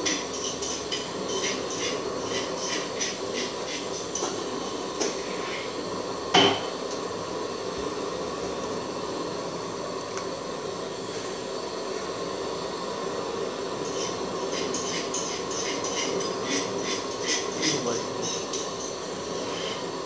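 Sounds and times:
gas burner rushing: 0:00.0 - 0:20.0.

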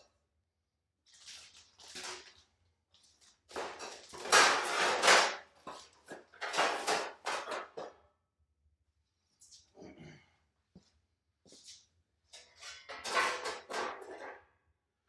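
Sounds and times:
packaging and sheet metal rustling: 0:01.1 - 0:07.9, 0:12.4 - 0:14.4.

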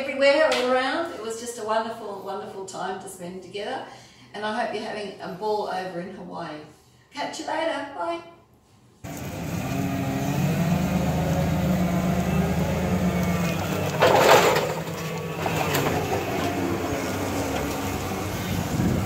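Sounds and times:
forklift engine running: 0:09.0 - 0:19.0.

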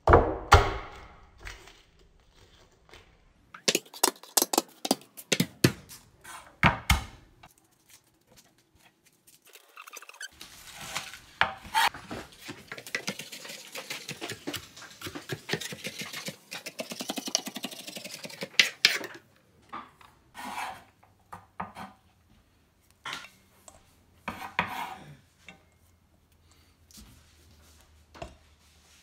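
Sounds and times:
knife scraping cutting board: 0:09.5 - 0:19.2, 0:20.4 - 0:20.9, 0:24.2 - 0:25.0.

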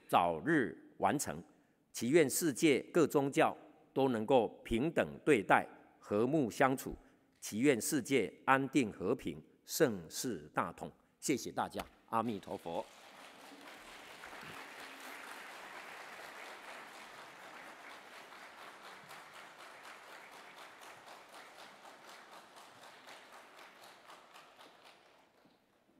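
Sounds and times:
audience applauding: 0:12.2 - 0:25.8.

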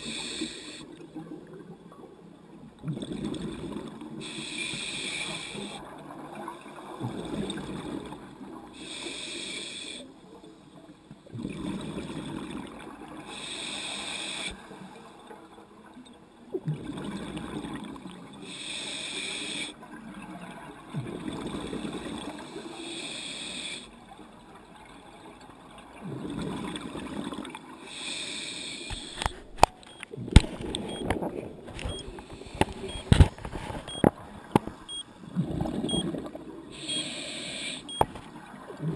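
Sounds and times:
regulator inhale hiss: 0:00.0 - 0:00.9, 0:04.2 - 0:05.8, 0:08.8 - 0:10.1, 0:13.3 - 0:14.7, 0:18.4 - 0:19.8, 0:22.5 - 0:23.9, 0:27.8 - 0:29.3, 0:36.7 - 0:37.9.

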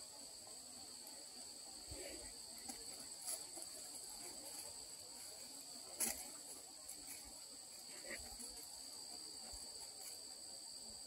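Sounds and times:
insects chorus: 0:00.0 - 0:11.0.

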